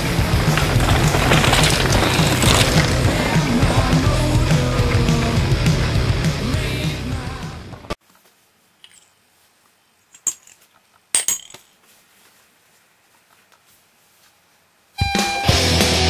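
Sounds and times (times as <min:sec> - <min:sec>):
rock music with distorted guitar: 0:00.0 - 0:08.0, 0:15.0 - 0:16.0.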